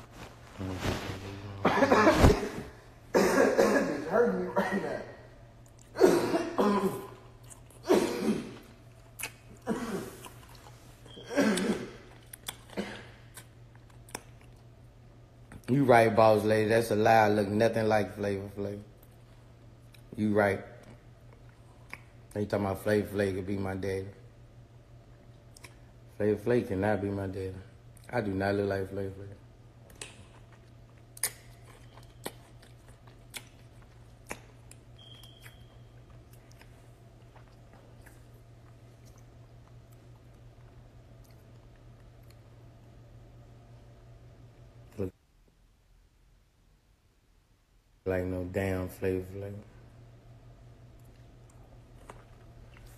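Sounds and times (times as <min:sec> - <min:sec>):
man chewing with lip-smacking: 0:07.4 - 0:07.8, 0:08.9 - 0:09.6, 0:10.2 - 0:11.2, 0:12.1 - 0:15.7, 0:20.8 - 0:22.4, 0:25.2 - 0:26.0, 0:29.8 - 0:42.6, 0:50.9 - 0:52.9
person crunching a pickle: 0:29.9 - 0:39.6.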